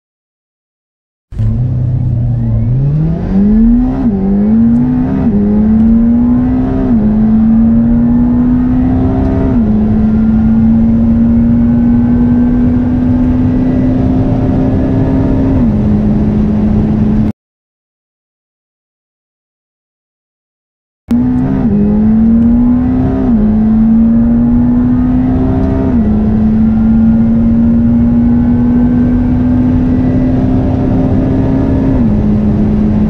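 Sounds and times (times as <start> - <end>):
car engine accelerating through gears: 1.3 - 17.3, 21.1 - 33.0.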